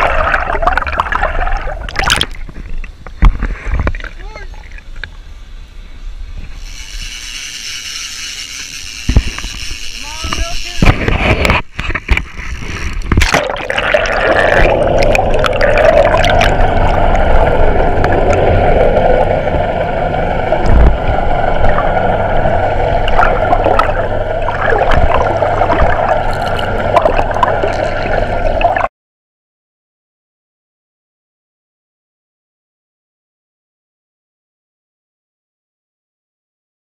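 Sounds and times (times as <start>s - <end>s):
muffled underwater water rushing: 0.0s - 5.6s, 10.8s - 28.9s.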